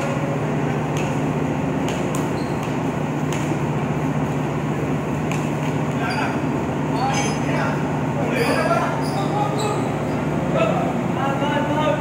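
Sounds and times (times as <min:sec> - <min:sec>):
basketball knocks: 0:05.2 - 0:06.0.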